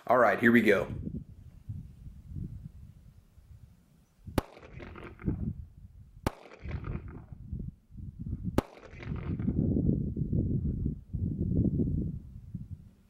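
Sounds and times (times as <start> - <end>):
pistol shots with echo: 4.4 - 5.4, 6.2 - 7.4, 8.6 - 9.6.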